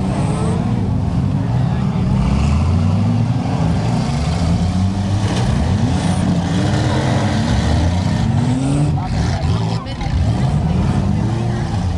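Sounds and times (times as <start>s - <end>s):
car engines revving: 0.0s - 11.9s.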